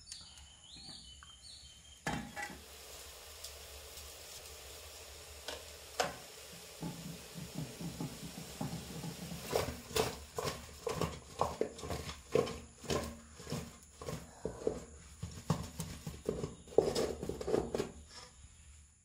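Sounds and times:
food knocking in metal pot: 0:06.8 - 0:18.0.

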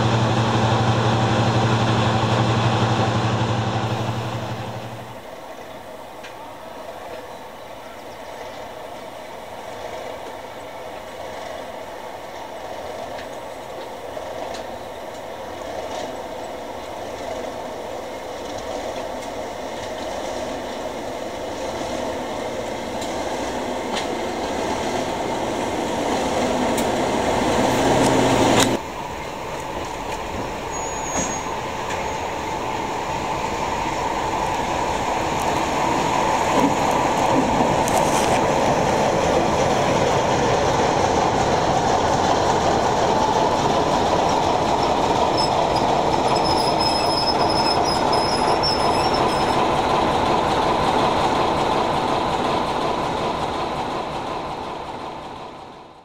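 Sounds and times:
train wheels rolling: 0:00.0 - 0:05.3, 0:09.7 - 0:56.0
diesel locomotive engine running: 0:00.0 - 0:05.4, 0:10.8 - 0:56.0
thin high squeal: 0:30.7 - 0:31.5.

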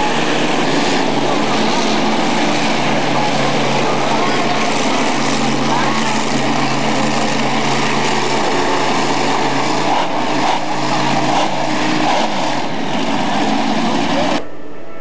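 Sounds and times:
monster truck engines revving: 0:00.0 - 0:14.4.

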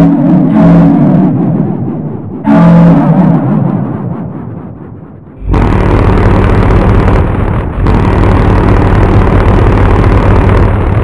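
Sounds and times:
low train horn blasts: 0:02.5 - 0:03.1.

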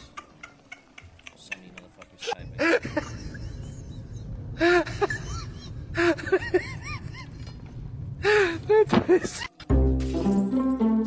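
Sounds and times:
steady low rumble: 0:02.4 - 0:08.8.

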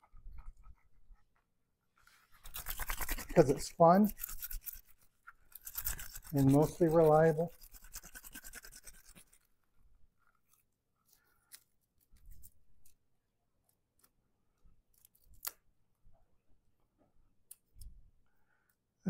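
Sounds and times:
garlic peeler rubbing: 0:02.4 - 0:09.5
garlic skin crackling and clicking: 0:14.9 - 0:15.6.

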